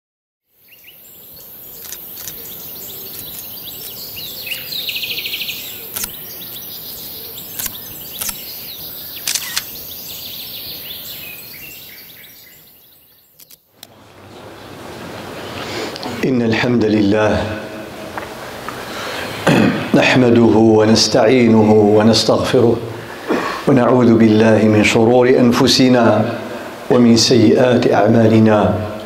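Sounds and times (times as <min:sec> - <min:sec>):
birds chirping and trilling: 0:00.5 - 0:14.8
sharp clicks: 0:01.8 - 0:02.4, 0:03.1 - 0:04.0, 0:05.9 - 0:06.2, 0:07.5 - 0:08.5, 0:09.2 - 0:09.8, 0:13.4 - 0:13.9.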